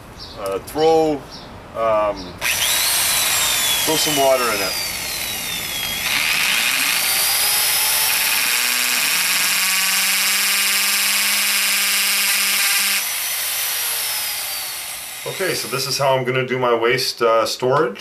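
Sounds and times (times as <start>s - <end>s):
electric drill boring plastic: 2.4s - 16.0s.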